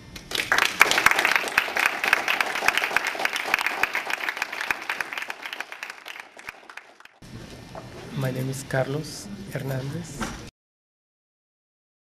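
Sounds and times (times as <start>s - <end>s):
audience applauding: 0.2s - 7.2s.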